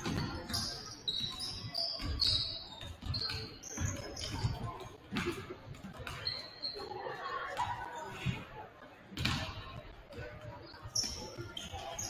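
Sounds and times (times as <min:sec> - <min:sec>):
basketball bouncing on gym floor: 0:00.0 - 0:06.2
sneakers squeaking: 0:00.0 - 0:08.5, 0:09.2 - 0:12.0.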